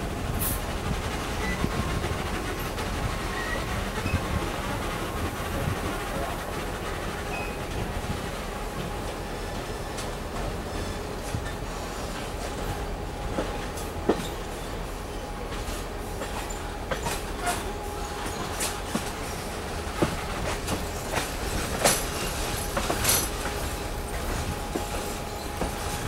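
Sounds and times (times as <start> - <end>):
train wheels rumbling on rail: 0.0 - 26.0
faint wheel squeal: 3.3 - 4.4.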